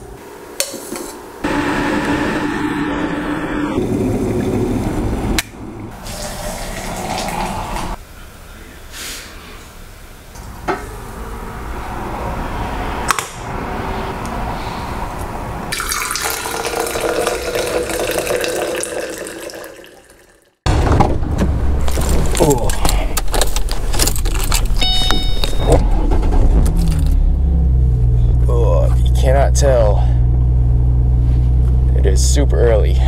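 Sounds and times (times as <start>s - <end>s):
electric kettle heating water: 15.7s - 20.5s
coffee pouring into metal tumbler: 15.8s - 20.4s.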